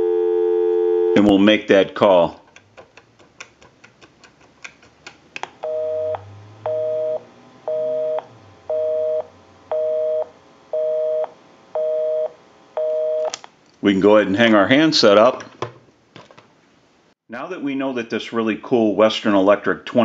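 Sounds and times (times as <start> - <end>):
telephone busy signal: 0.0 - 1.2, 5.6 - 13.3.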